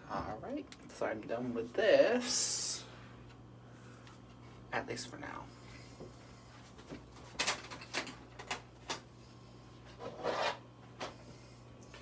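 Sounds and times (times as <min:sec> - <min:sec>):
makeup packaging rubbing and scraping: 0:10.0 - 0:10.7.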